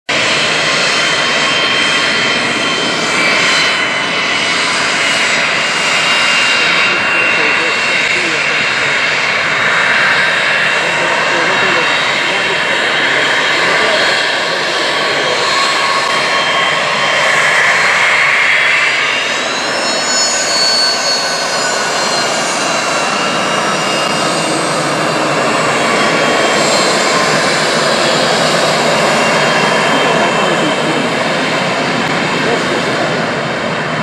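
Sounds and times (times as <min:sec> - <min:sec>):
jet engine whine and rush: 0:00.1 - 0:34.0
high whistling tones: 0:19.2 - 0:24.2.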